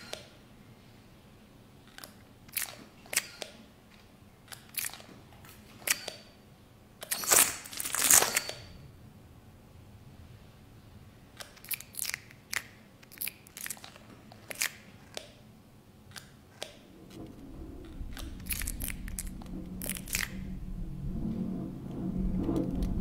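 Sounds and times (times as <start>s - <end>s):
crackles and snaps: 1.9s - 6.2s, 7.0s - 8.7s, 11.4s - 15.4s, 16.1s - 20.5s
low rumble: 16.9s - 23.0s.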